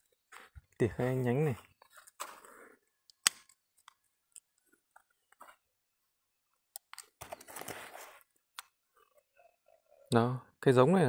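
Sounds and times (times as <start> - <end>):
pruning shears snapping: 3.2 - 3.5.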